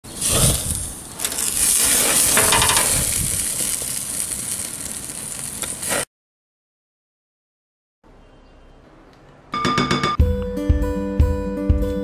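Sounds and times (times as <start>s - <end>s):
meat sizzling on a grill: 0.1s - 6.1s.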